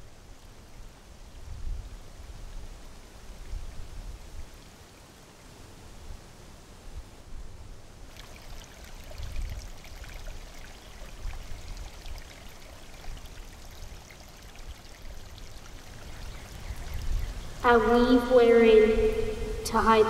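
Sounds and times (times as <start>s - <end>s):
rain hissing: 8.1s - 17.8s.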